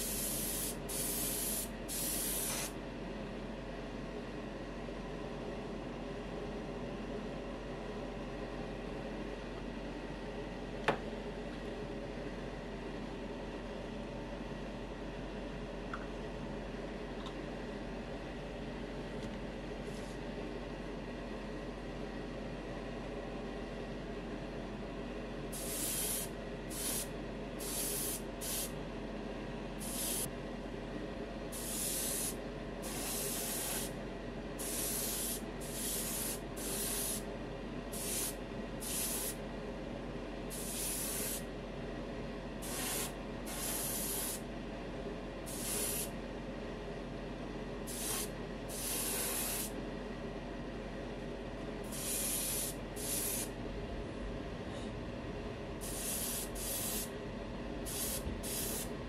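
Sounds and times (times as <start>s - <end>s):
airbrush spraying hiss: 0.0s - 2.8s, 25.6s - 28.7s, 29.8s - 30.3s, 31.6s - 34.0s, 34.6s - 37.2s, 37.9s - 39.4s, 40.5s - 41.4s, 42.6s - 44.4s, 45.5s - 46.1s, 47.9s - 49.7s, 51.9s - 53.5s, 55.8s - 57.1s, 57.9s - 58.9s
low hum: 53.5s - 56.0s.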